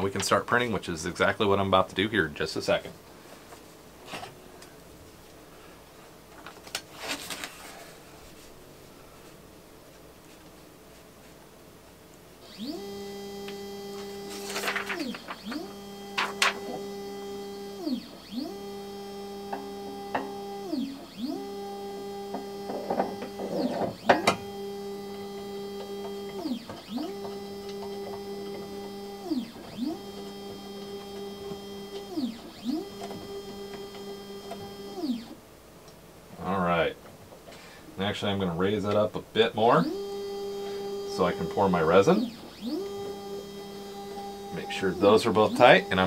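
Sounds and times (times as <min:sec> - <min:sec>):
stepper motor whine: 0:12.4 - 0:35.4, 0:39.8 - 0:46.0.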